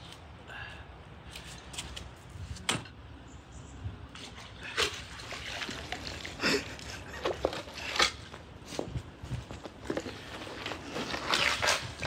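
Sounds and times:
water splashing and dripping: 4.1 - 7.0.

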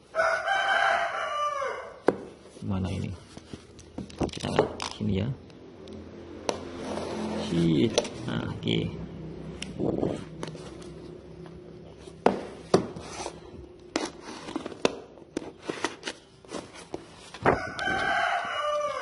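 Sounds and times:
rooster crowing: 0.1 - 2.0, 17.4 - 19.0.

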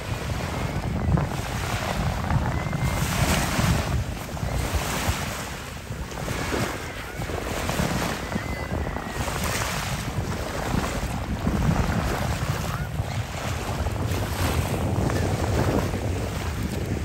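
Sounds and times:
sea water washing and splashing: 0.0 - 17.0
wind buffeting microphone: 0.0 - 17.0.

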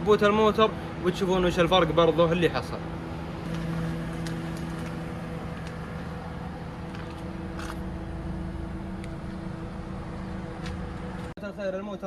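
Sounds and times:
car engine idling: 0.0 - 11.4.

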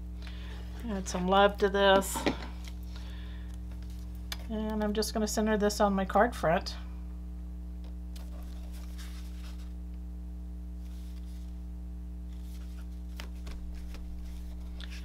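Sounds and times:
low electrical hum: 0.0 - 15.0
card stock rustling and tapping: 12.3 - 15.0.

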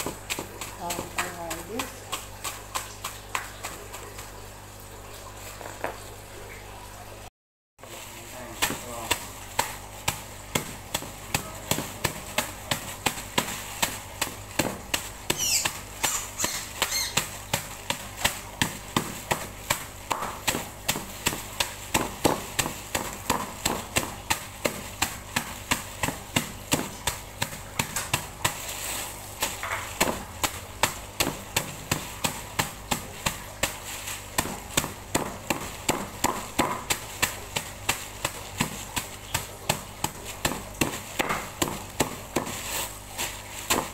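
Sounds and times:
knife chopping on wooden block: 8.6 - 28.6, 34.4 - 43.0.

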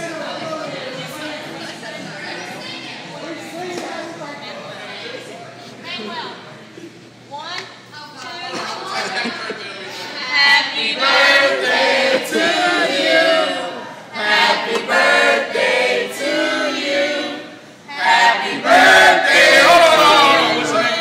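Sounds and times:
group singing a celebration song: 10.4 - 21.0.

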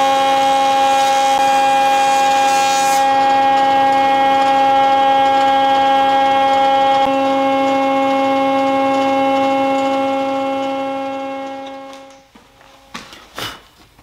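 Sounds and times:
wood being cut hiss: 0.0 - 5.2
planer cutterhead whine: 0.0 - 12.3.

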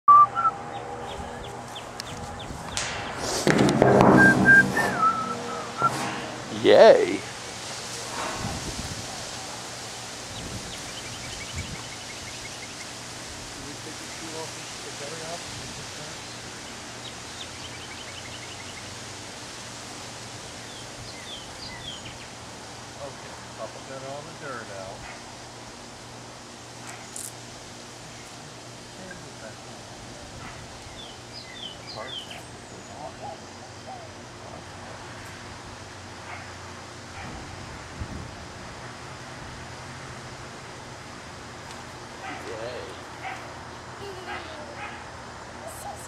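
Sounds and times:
outdoor background hiss: 0.1 - 46.0
short high squeaks: 3.9 - 6.3.

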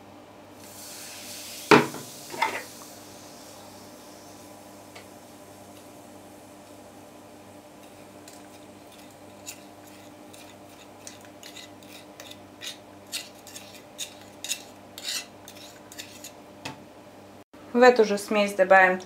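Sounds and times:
metal teaspoon scraping and tapping: 8.3 - 16.4.

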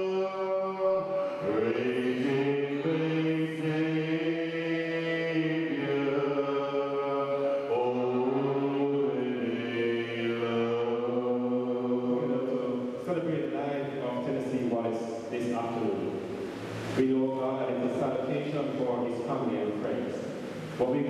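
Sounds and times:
congregation singing a hymn: 0.0 - 16.1.

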